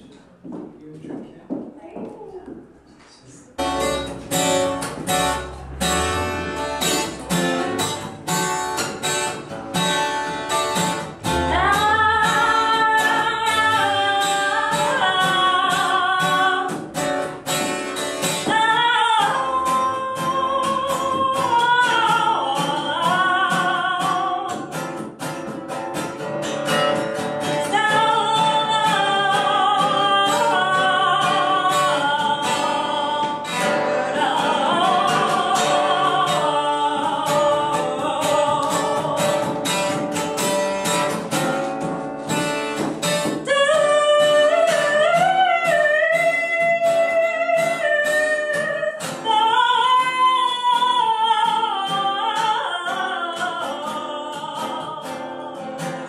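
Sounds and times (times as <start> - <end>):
plucked acoustic guitar: 3.6 - 56.0
person singing long notes: 11.2 - 16.7, 27.7 - 39.8.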